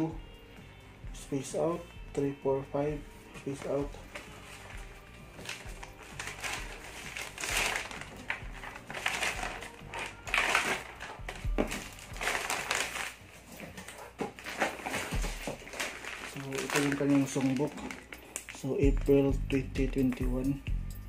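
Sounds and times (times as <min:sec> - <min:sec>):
plastic bag crinkling: 0:03.5 - 0:18.8.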